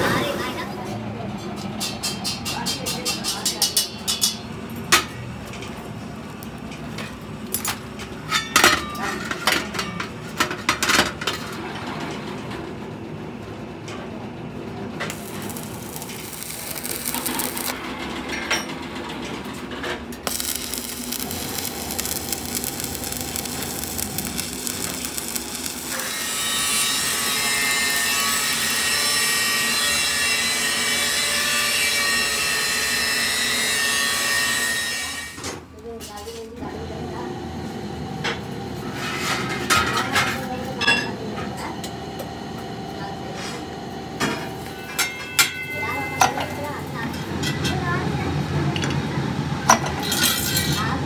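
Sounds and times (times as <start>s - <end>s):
arc welding crackling hiss: 15.1s - 17.8s, 20.2s - 30.8s.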